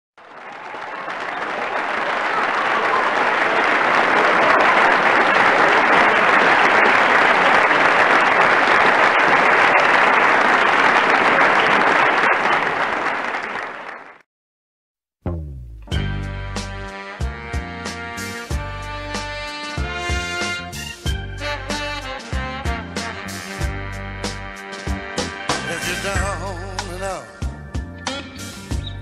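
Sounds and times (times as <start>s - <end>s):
crowd applause: 0.2s - 14.2s.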